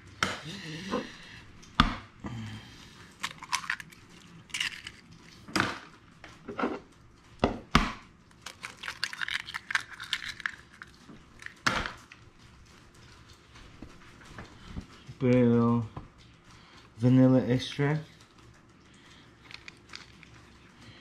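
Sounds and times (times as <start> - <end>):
shell breaking and handling noise: 3.1 - 6.0, 8.3 - 12.8, 19.4 - 20.8.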